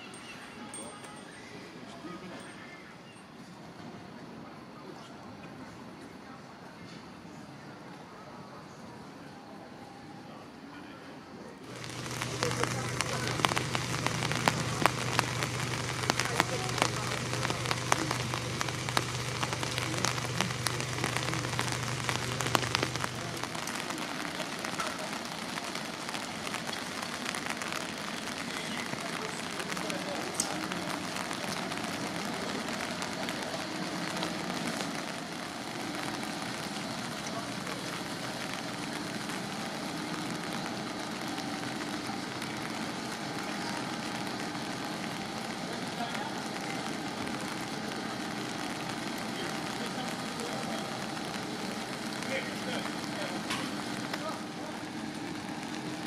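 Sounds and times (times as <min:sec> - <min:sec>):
rain on a wet street: 0:00.0 - 0:56.0
even hiss: 0:11.6 - 0:56.0
low steady hum: 0:11.7 - 0:24.2
drips ticking: 0:11.7 - 0:39.8
fire engine idling: 0:11.7 - 0:56.0.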